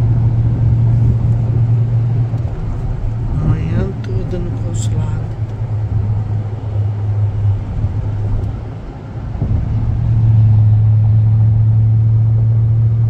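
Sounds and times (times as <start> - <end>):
car engine and tyre drone: 0.0 - 13.0.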